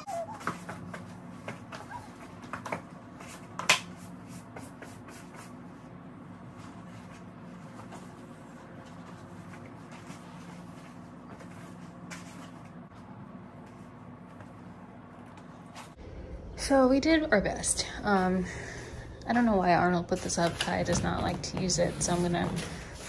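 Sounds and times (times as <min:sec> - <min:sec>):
low room hum: 0:00.0 - 0:23.0.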